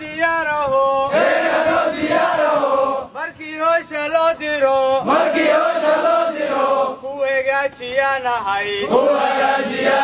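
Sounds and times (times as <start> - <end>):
group of men chanting: 1.1 - 3.1, 5.0 - 7.0, 8.8 - 10.0.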